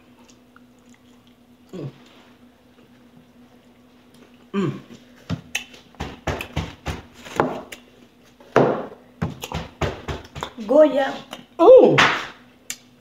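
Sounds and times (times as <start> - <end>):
person chewing fried chicken: 0.0 - 6.5.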